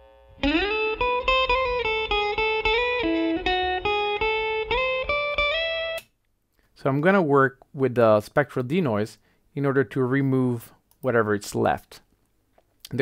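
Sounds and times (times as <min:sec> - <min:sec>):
electric guitar picked chords: 0:00.0 - 0:06.0
faint amplifier buzz: 0:00.0 - 0:07.6.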